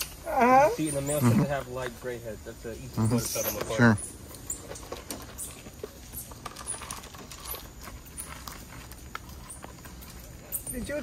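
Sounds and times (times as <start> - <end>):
monkeys scrabbling on tray: 2.9 - 11.0.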